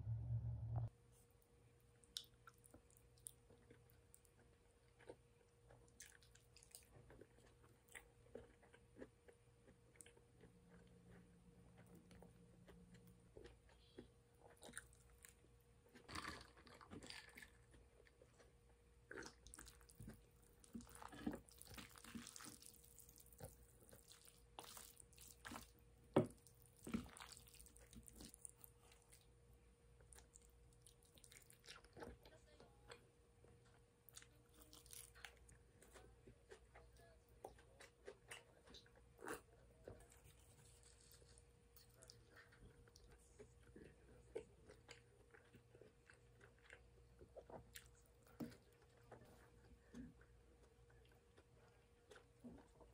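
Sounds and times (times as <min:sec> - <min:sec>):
soft chewing: 0:01.1 - 0:52.9.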